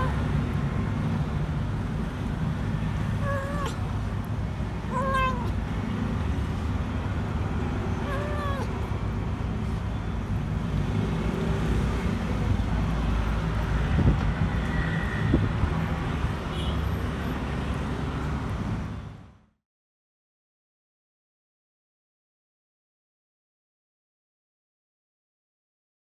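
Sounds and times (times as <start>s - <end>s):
vehicle engine rumble: 0.0s - 19.5s
road traffic noise: 0.0s - 19.6s.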